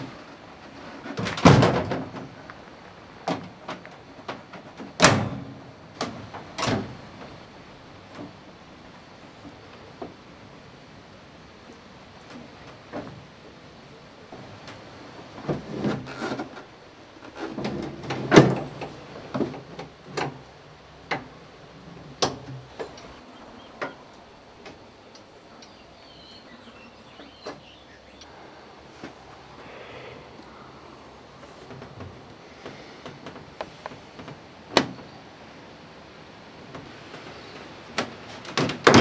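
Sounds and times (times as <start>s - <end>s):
mower parts clicking and knocking: 37.9s - 39.0s.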